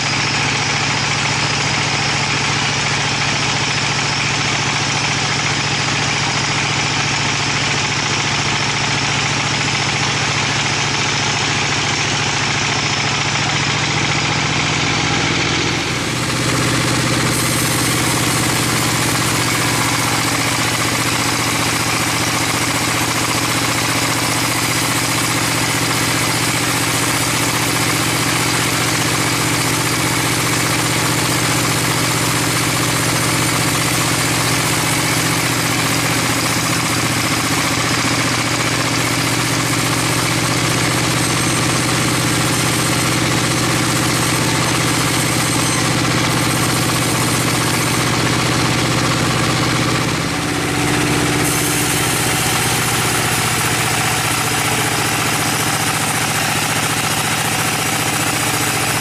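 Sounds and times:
band saw cutting a log: 0.0 - 59.0.

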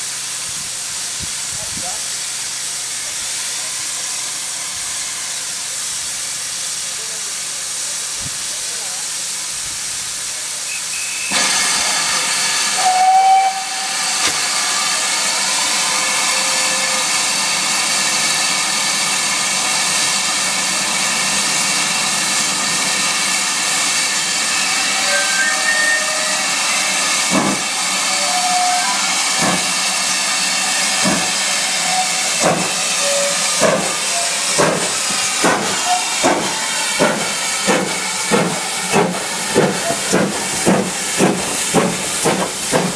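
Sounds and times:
steam locomotive hissing: 0.0 - 42.9
train whistle blast: 10.6 - 17.2, 24.7 - 29.8, 30.7 - 34.4
locomotive exhaust beats: 31.0 - 42.9.

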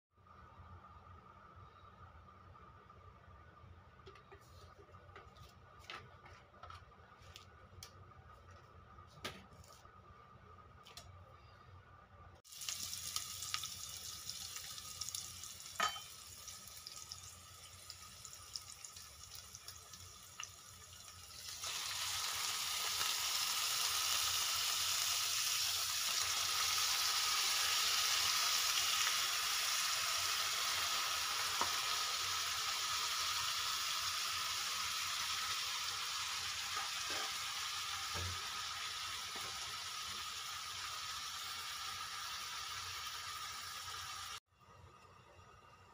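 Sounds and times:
meat frying in a pot: 12.4 - 44.4
onion sizzling in hot oil: 12.4 - 44.4.

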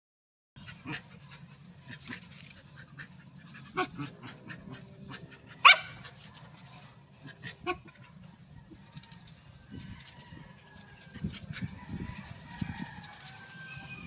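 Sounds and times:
dogs yipping: 0.6 - 8.3.

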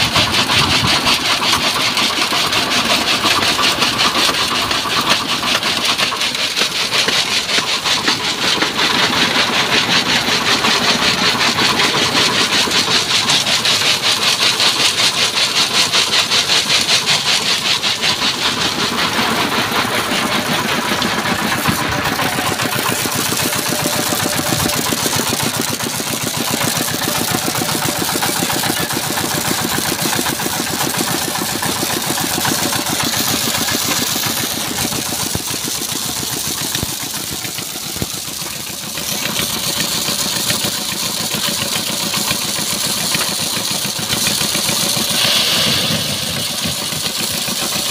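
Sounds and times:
engine chugging: 0.0 - 47.9
high hiss: 45.0 - 47.8.

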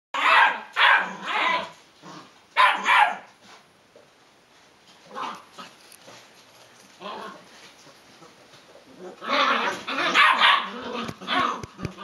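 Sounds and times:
puppy barking: 0.2 - 1.7, 2.6 - 3.3, 9.3 - 12.0.

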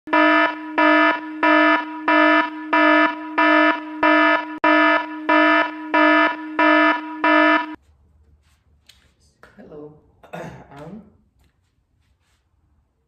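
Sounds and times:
electronic warning alarm buzzing: 0.1 - 7.8.

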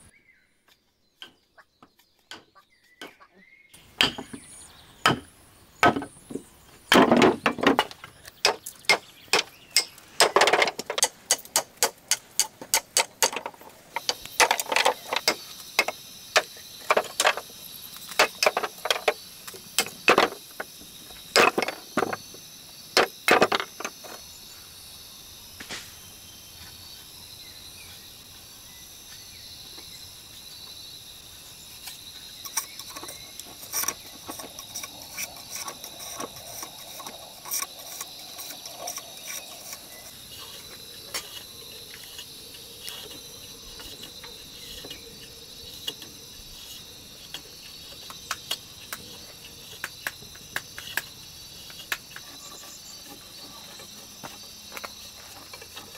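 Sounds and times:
insects chirring: 0.0 - 55.9.

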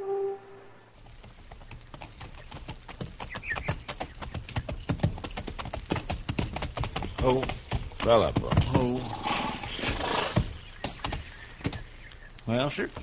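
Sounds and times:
music bridge note: 0.0 - 0.9
horse hooves clip-clopping: 0.9 - 13.0.

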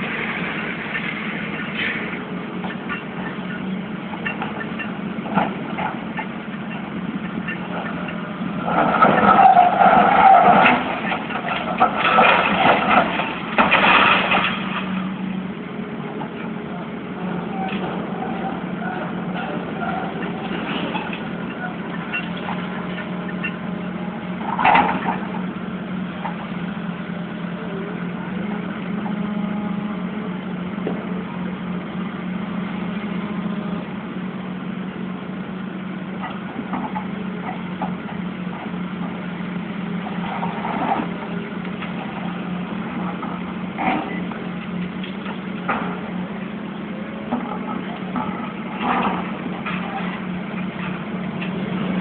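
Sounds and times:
demolition machinery engine hum: 0.0 - 52.0
building crashing: 8.6 - 15.2.

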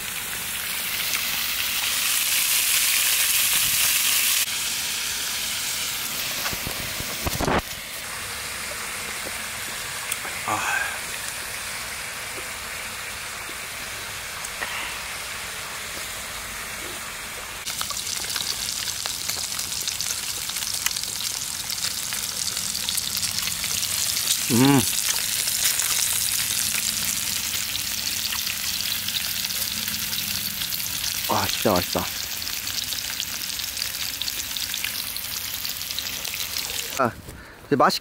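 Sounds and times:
pork sizzling in a pan: 0.0 - 37.0
person exclaiming: 10.3 - 11.1, 24.4 - 25.0.

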